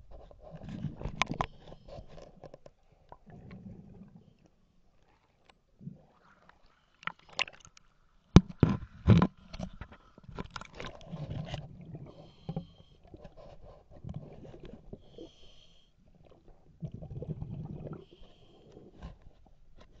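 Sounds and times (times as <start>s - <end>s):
exhaled bubbles rumbling: 10.8s - 12.2s, 16.2s - 18.2s.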